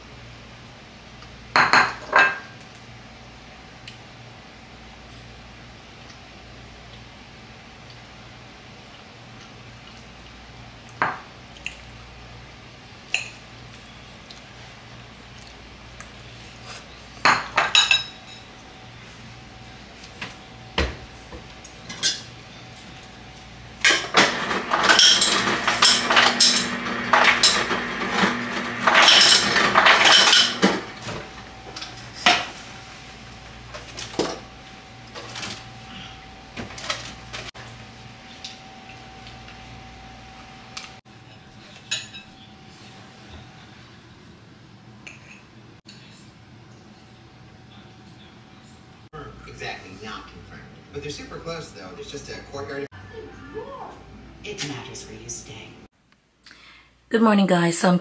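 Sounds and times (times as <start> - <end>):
dishes and cutlery clinking: 21.8 - 22.3, 28.9 - 30.8, 41.2 - 42.5, 45.0 - 46.0.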